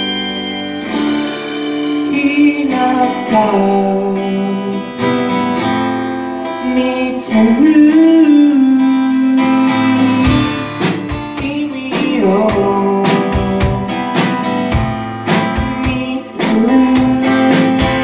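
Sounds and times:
strummed acoustic guitar: 0:00.0 - 0:18.0
drum hits: 0:00.9 - 0:03.8, 0:10.3 - 0:18.0
man singing: 0:01.8 - 0:05.2, 0:06.4 - 0:14.7, 0:15.3 - 0:18.0.

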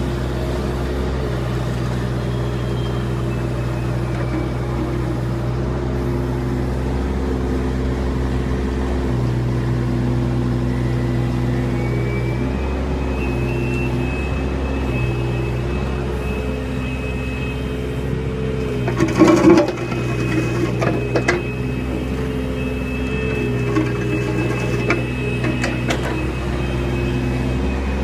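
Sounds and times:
diesel engine running: 0:00.0 - 0:28.0
bucket scraping and clanking: 0:18.6 - 0:22.1, 0:23.2 - 0:26.7.

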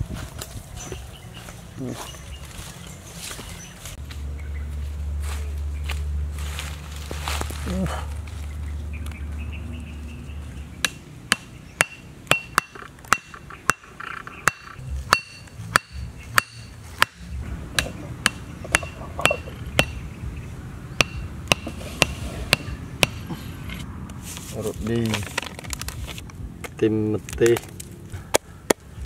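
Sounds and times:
blade striking wooden stakes: 0:10.8 - 0:20.0, 0:21.0 - 0:23.9.

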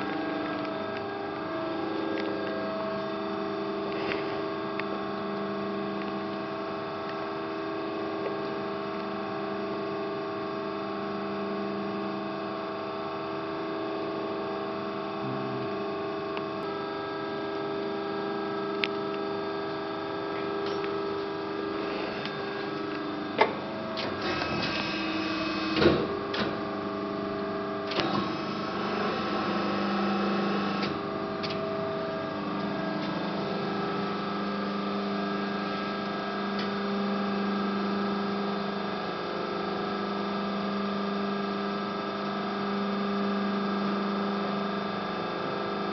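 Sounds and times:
hydraulic press brake humming: 0:18.7 - 0:37.1.

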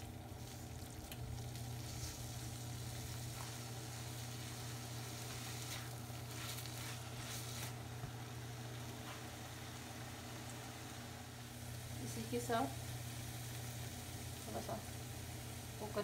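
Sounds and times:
food sizzling in a wok: 0:00.0 - 0:16.0
steady low hum: 0:00.0 - 0:16.0
spatula scraping a pan: 0:05.2 - 0:07.8.

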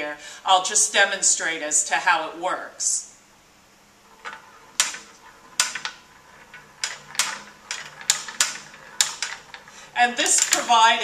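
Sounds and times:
marbles clacking on wooden track: 0:04.1 - 0:11.0.

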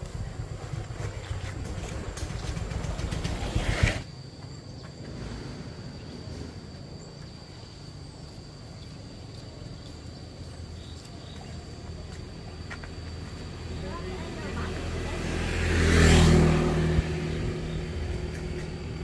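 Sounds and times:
vehicle engine running: 0:00.0 - 0:03.8, 0:09.8 - 0:19.0.

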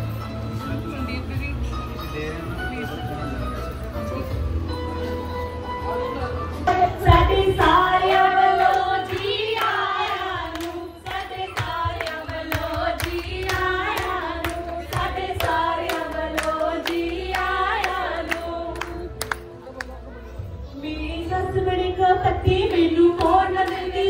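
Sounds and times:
women singing folk verse: 0:06.7 - 0:19.1, 0:20.8 - 0:24.0
rhythmic hand clapping: 0:07.6 - 0:20.0, 0:22.5 - 0:24.0.

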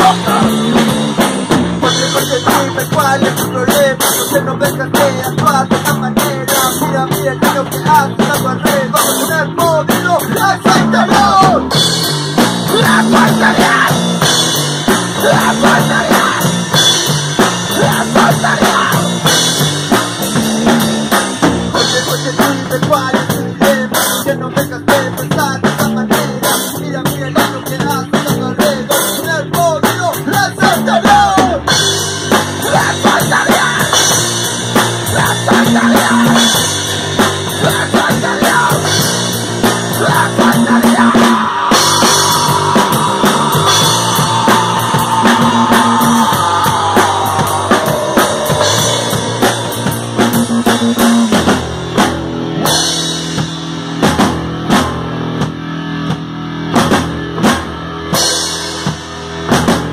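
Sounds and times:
person singing into a microphone: 0:00.0 - 0:01.0, 0:01.8 - 0:11.8, 0:12.6 - 0:14.3, 0:15.1 - 0:19.4, 0:21.7 - 0:31.8, 0:32.6 - 0:34.4, 0:35.0 - 0:36.7, 0:37.5 - 0:51.0
bass guitar: 0:00.0 - 0:59.9
electric guitars: 0:00.0 - 0:59.9
pounding drum kit: 0:00.0 - 0:59.9.

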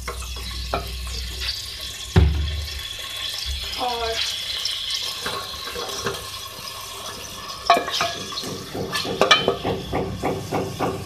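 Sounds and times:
meat sizzling in hot oil: 0:00.0 - 0:11.0
wooden spatula knocking on pot: 0:07.7 - 0:11.0.

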